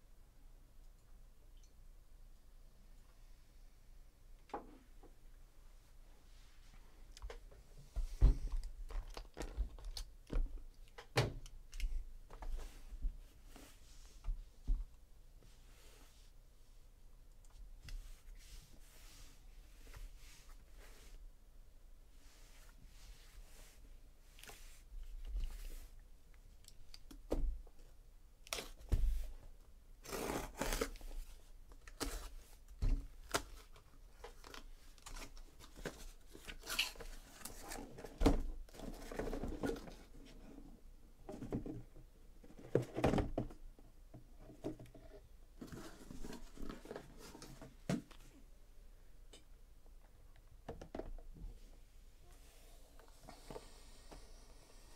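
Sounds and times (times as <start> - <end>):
cardboard rustling and scraping: 45.6 - 47.8.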